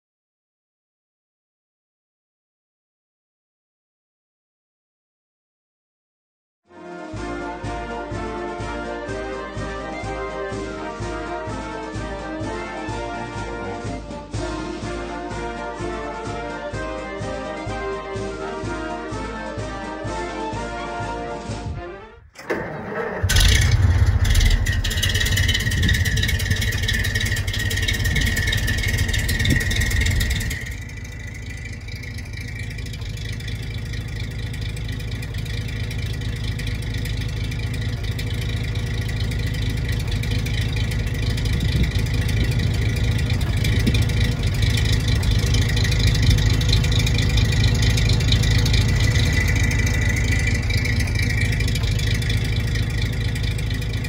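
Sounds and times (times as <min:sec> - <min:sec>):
truck engine rumble with whine: 0:21.3 - 0:54.0.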